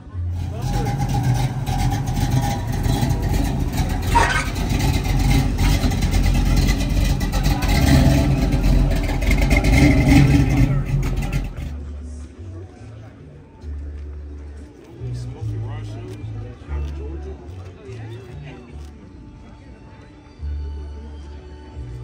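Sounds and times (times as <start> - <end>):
car engine running loudly: 0.3 - 11.9.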